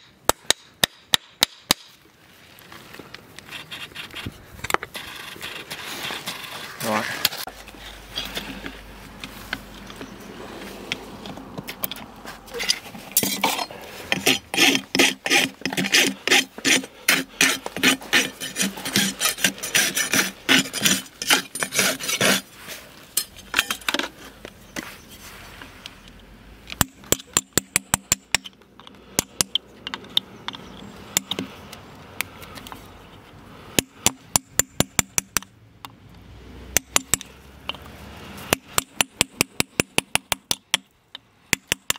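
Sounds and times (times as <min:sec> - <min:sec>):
rasp filing a hoof: 0:12.5 - 0:23.8.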